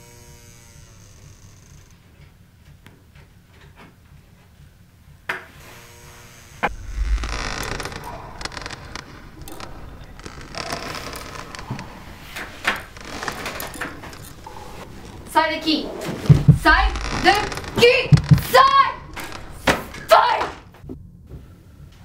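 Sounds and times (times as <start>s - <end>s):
heavy thump: 6.6s - 13.3s, 16.0s - 20.0s
low hum: 6.6s - 20.0s
clattering and rustling: 6.6s - 20.9s.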